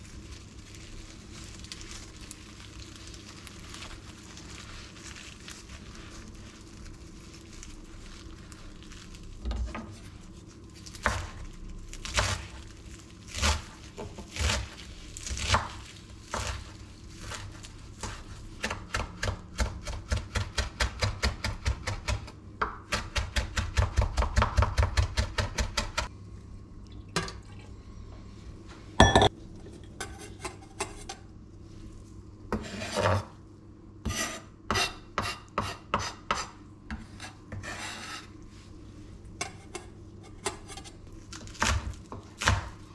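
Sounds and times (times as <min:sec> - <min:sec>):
blade scraping across board: 0:32.6 - 0:33.2, 0:37.1 - 0:38.3.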